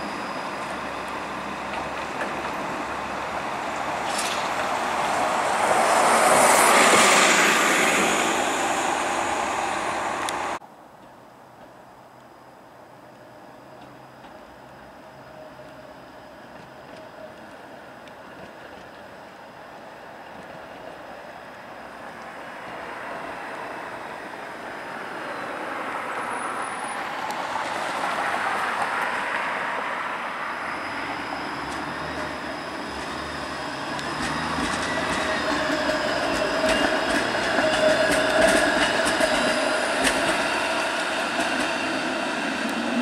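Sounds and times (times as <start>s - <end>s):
streetcar motor whine: 0.0s - 10.6s, 12.7s - 43.0s
wheels clicking on rails: 15.6s - 21.0s, 31.2s - 43.0s.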